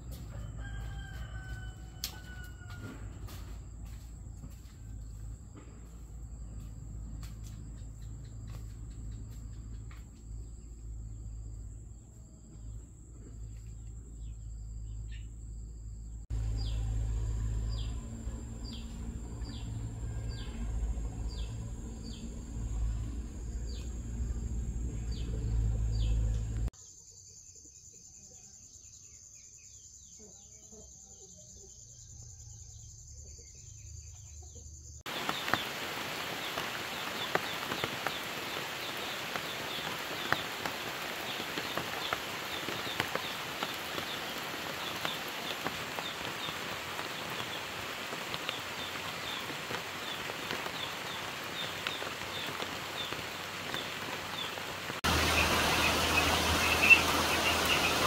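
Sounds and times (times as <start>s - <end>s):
insect drone: 5.1s - 34.1s, 34.8s - 58.0s
low rumble: 16.3s - 26.7s
steady rain: 16.3s - 26.7s, 35.1s - 58.0s.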